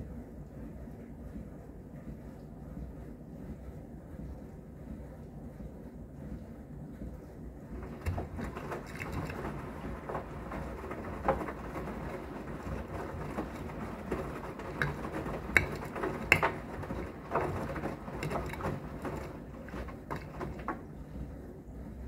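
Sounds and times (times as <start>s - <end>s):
washing machine hum: 0.0s - 22.0s
washing machine laundry sloshing: 7.5s - 22.0s
dishwasher running: 7.6s - 21.6s.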